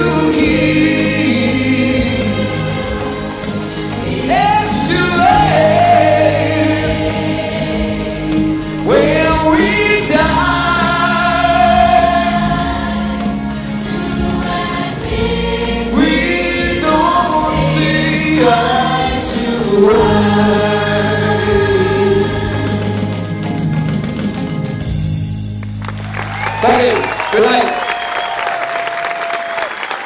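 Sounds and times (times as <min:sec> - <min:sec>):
choir singing: 0:00.0 - 0:23.6
live band playing: 0:00.0 - 0:28.6.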